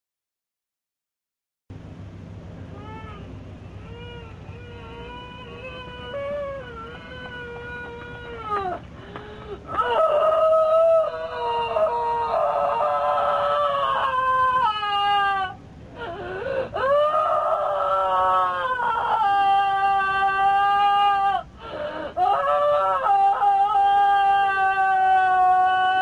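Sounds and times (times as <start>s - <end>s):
high voice wailing: 2.7s - 8.8s.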